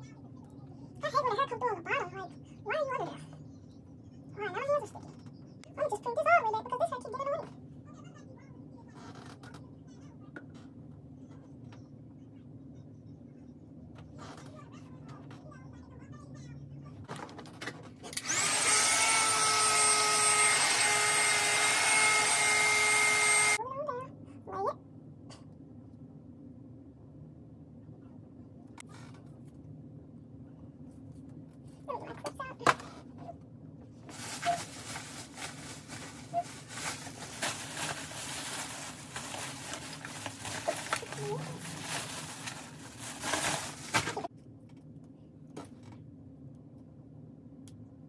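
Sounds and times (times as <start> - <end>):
hair dryer running: 18.2 - 23.6
plastic bag and foil crinkling: 34.0 - 44.3.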